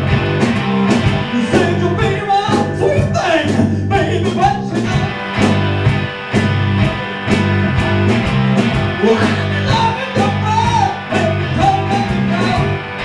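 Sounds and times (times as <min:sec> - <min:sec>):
rock band playing: 0:00.0 - 0:13.0
man singing: 0:01.3 - 0:05.2, 0:09.0 - 0:12.9.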